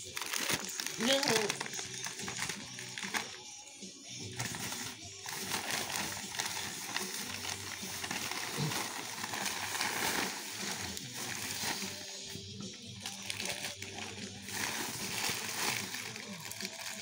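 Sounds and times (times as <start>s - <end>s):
paper crinkling and rustling: 0.1s - 3.4s, 4.3s - 12.0s, 13.0s - 17.0s.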